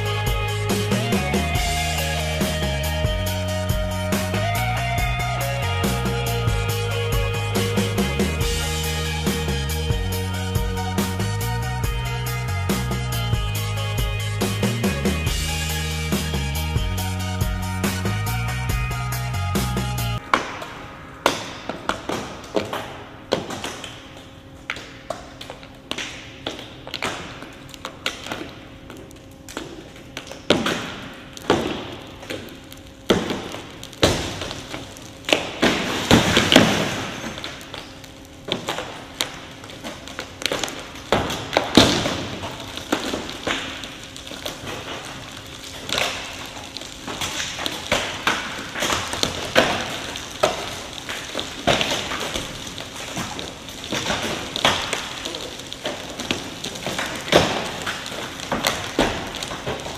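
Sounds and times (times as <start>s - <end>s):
glass and metal cracking: 26.9s - 59.9s.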